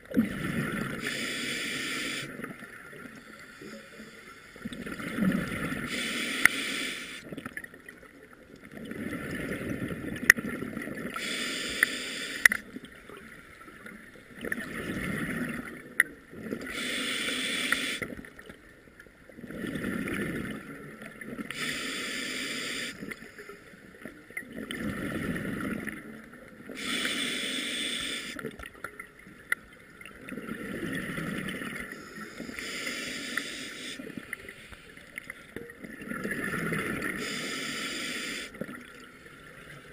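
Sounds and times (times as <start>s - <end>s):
diver breathing through regulator: 1.0s - 2.4s, 5.9s - 7.2s, 11.2s - 12.6s, 16.7s - 18.1s, 21.5s - 23.6s, 26.8s - 28.4s, 31.9s - 35.0s, 37.1s - 38.6s.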